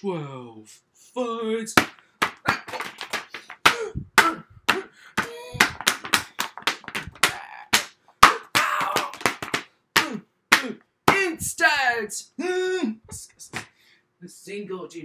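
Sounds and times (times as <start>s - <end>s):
books slapping together: 4.7s - 11.2s.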